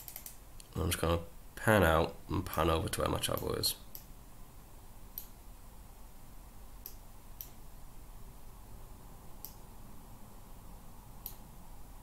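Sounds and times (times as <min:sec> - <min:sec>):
low steady background hum: 0:00.0 - 0:12.0
faint computer mouse clicks: 0:11.2 - 0:11.4.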